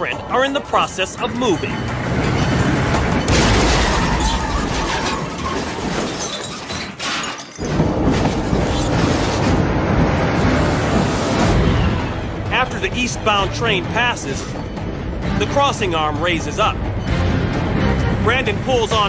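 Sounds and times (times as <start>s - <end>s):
music: 0.0s - 3.4s, 7.7s - 19.0s
vehicle collision crashing: 2.2s - 12.4s.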